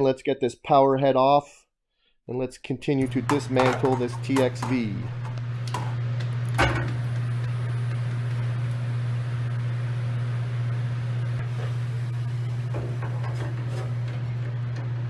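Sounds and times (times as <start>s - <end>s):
low machinery hum: 3.0s - 15.0s.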